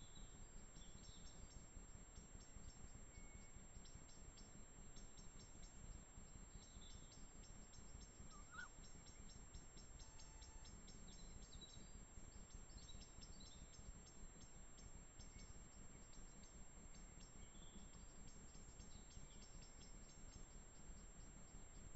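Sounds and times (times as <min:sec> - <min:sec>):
faint animal call: 0:08.3 - 0:08.8, 0:10.0 - 0:10.8.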